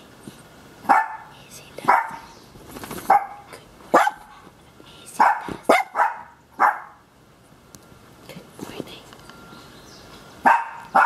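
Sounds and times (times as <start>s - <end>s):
small dogs barking and yipping: 0.8s - 2.3s, 2.9s - 4.4s, 5.1s - 7.1s, 10.4s - 11.0s.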